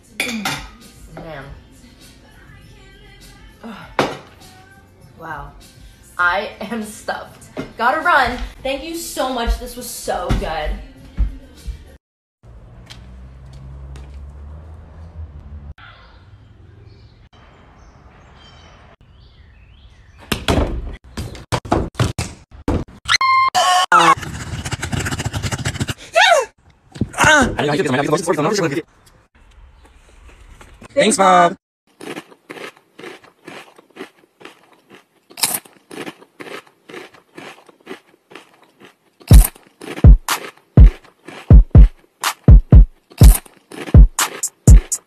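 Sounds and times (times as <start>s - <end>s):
person chewing crunchy chips: 31.9s - 42.0s, 43.1s - 45.0s.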